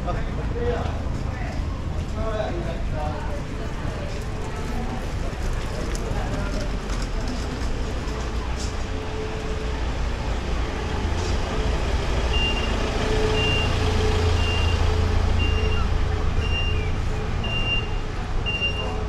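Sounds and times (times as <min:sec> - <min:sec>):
van engine rumbling: 0:00.0 - 0:19.0
reversing alarm beeping: 0:12.2 - 0:19.0.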